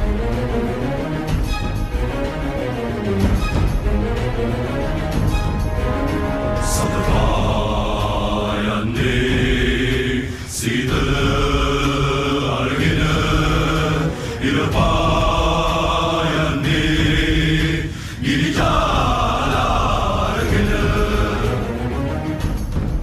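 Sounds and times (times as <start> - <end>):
choir chanting held notes: 4.4 - 22.4.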